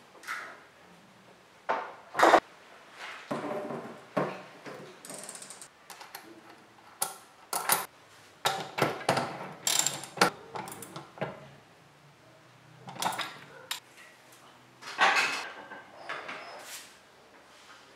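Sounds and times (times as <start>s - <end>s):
metal clicks and clinks: 12.9s - 13.8s.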